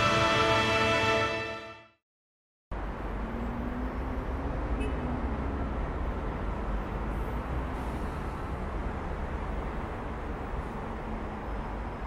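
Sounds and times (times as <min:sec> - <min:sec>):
city traffic rumble: 0:02.7 - 0:12.0.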